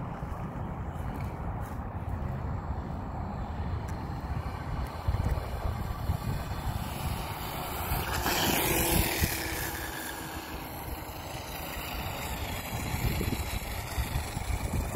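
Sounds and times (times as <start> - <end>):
wind rumble on microphone: 0.0 - 14.9
toy motorcycle motor whine: 3.4 - 14.9.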